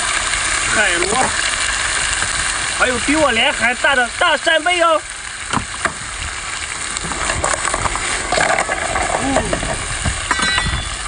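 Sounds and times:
seafood sizzling in hot oil: 0.0s - 11.0s
stirring sounds: 6.8s - 11.0s.

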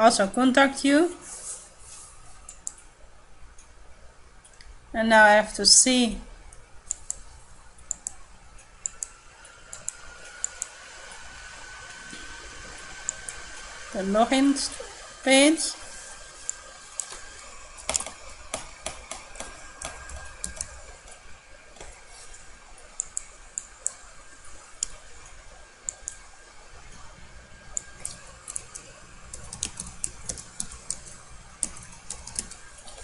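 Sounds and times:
typing on computer keyboard: 28.0s - 32.6s.

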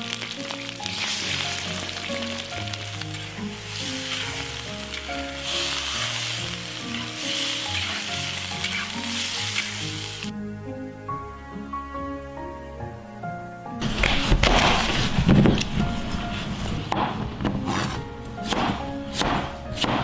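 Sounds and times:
food sizzling in a pot: 0.0s - 10.3s
soft background music: 0.0s - 20.0s.

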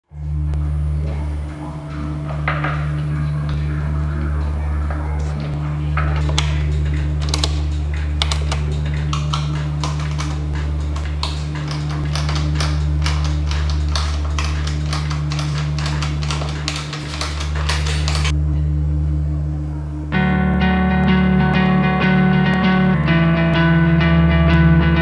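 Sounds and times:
steady low hum: 0.0s - 25.0s
tiles clicking and tapping: 6.0s - 18.3s.

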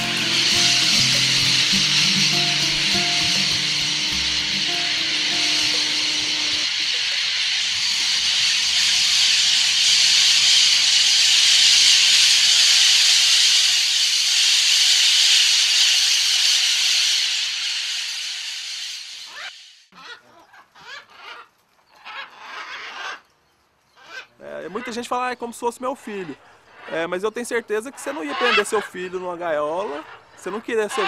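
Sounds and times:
flock of parakeets screeching: 0.0s - 10.6s, 19.2s - 23.2s, 24.0s - 31.0s.

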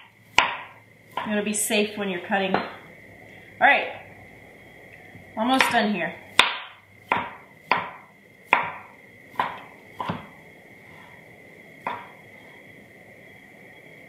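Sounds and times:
knife chopping on cutting board: 0.4s - 1.4s, 6.4s - 10.3s, 11.8s - 12.1s.

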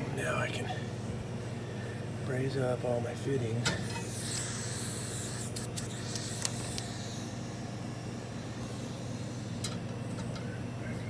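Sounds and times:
low machine hum: 0.0s - 11.0s
sharp clicks: 5.5s - 6.9s.

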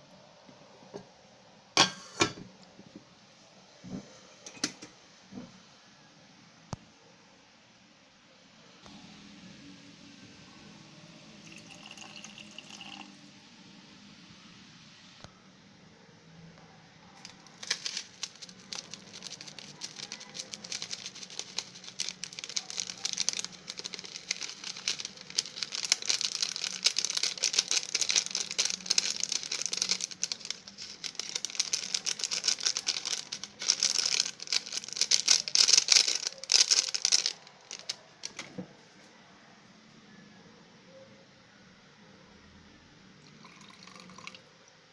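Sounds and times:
foil sachet crinkling: 17.2s - 38.4s
granules pattering onto food: 17.2s - 38.4s.

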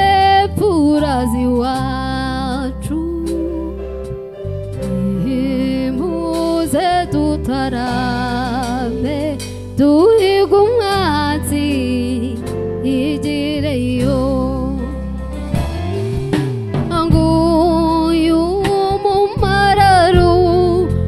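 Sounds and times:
woman singing a slow ballad: 0.0s - 4.2s, 4.8s - 15.3s, 16.9s - 21.0s
live band playing: 12.4s - 21.0s.

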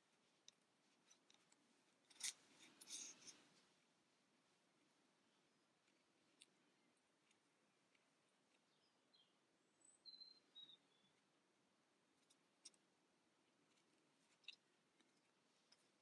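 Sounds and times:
faint high chirp: 8.5s - 11.3s.

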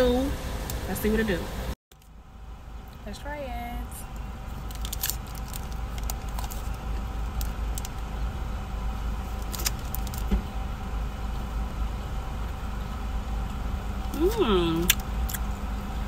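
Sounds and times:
low car cabin hum: 0.0s - 16.0s
foil wrapper crackling: 4.6s - 8.0s, 9.3s - 10.3s
crunchy chewing: 14.8s - 15.7s.

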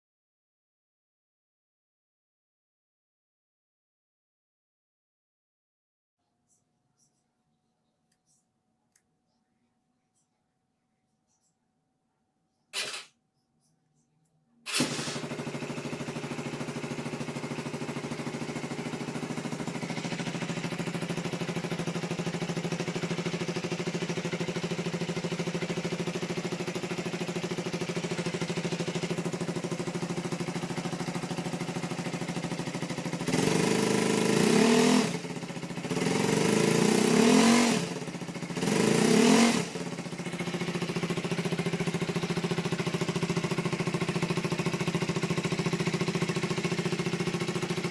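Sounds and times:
motorcycle electric starter: 12.8s - 13.1s, 14.7s - 34.4s
motorcycle engine idling: 14.7s - 47.9s
motorcycle throttle revs: 14.7s - 47.9s.

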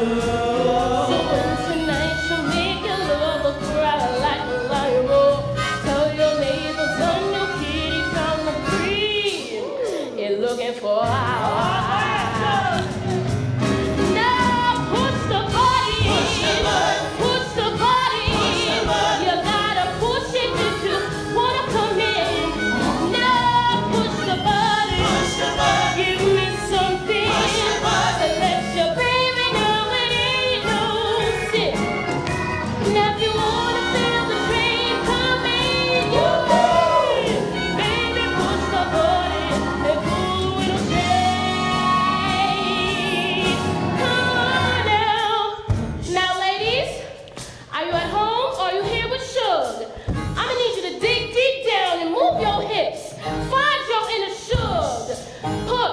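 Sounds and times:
chorus of voices: 0.0s - 2.3s, 11.0s - 45.3s
woman singing lead: 0.0s - 13.1s, 14.0s - 55.9s
instrumental accompaniment: 0.0s - 46.5s.

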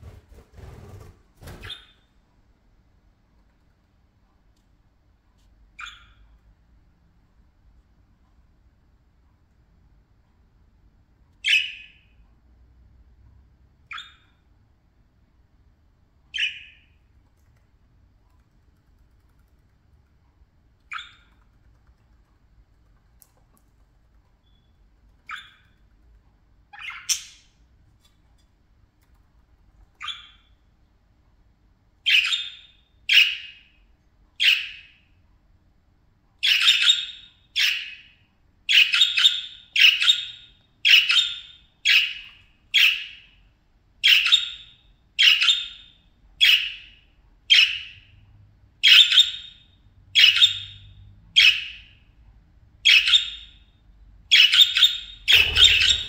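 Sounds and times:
budgies calling: 54.3s - 56.0s.

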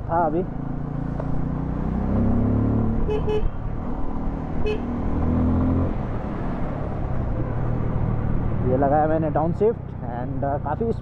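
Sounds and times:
motorcycle engine revving: 0.2s - 10.9s
motorcycle horn beeps: 3.1s - 3.6s, 4.6s - 4.9s.

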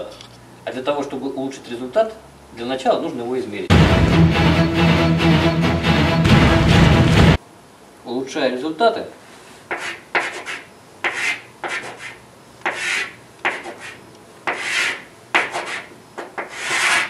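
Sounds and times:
chalk scratching on blackboard: 9.7s - 17.0s.

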